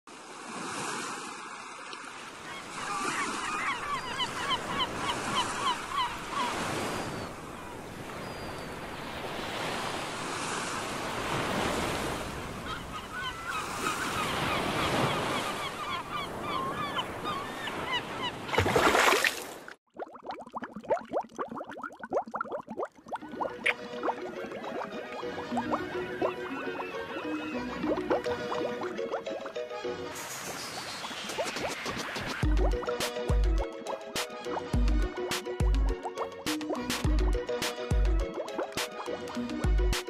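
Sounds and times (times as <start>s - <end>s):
ocean waves washing: 0.1s - 19.8s, 22.5s - 39.8s
birds calling: 2.4s - 9.7s, 12.4s - 19.0s, 23.7s - 29.4s
rush of water: 18.6s - 19.8s, 30.1s - 32.4s.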